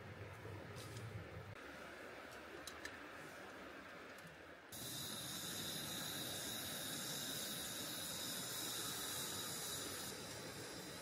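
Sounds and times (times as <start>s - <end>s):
gas lantern hissing: 4.7s - 11.0s.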